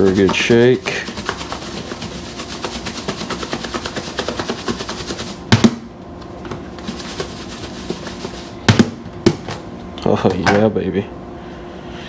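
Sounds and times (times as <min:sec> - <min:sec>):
plastic container rattling when shaken: 0:00.0 - 0:05.4, 0:06.6 - 0:08.6.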